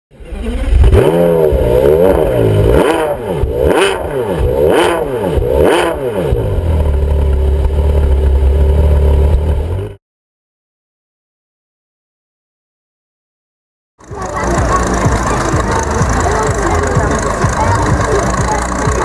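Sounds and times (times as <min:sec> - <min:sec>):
engine revving and idling: 0:00.1 - 0:10.0, 0:14.0 - 0:19.0.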